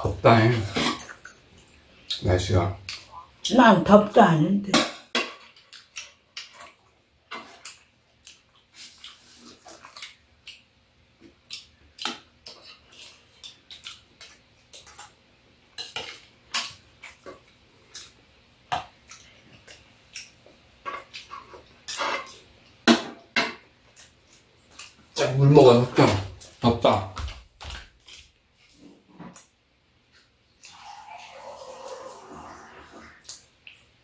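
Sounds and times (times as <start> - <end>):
utensils clinking against bowls: 0.5 - 1.4.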